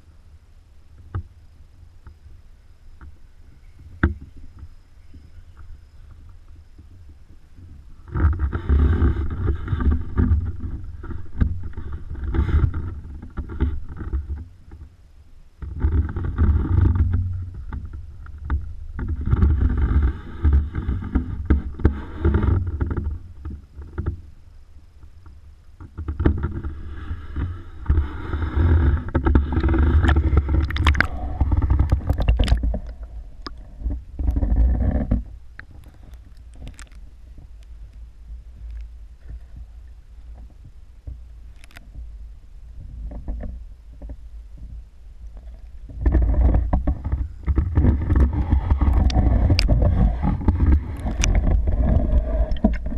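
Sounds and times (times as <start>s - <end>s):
water sloshing against camera housing: 26.1s - 37.7s, 45.9s - 52.9s.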